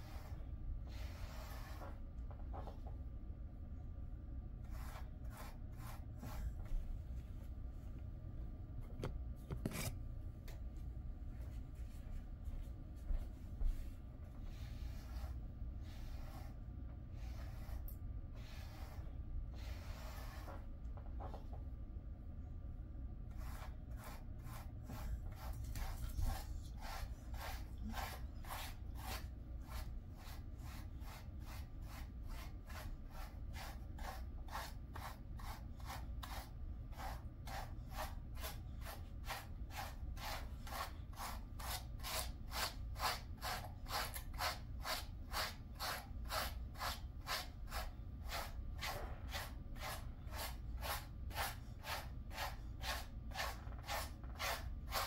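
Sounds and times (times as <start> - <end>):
brush raking through dog fur: 23.5 - 55.0.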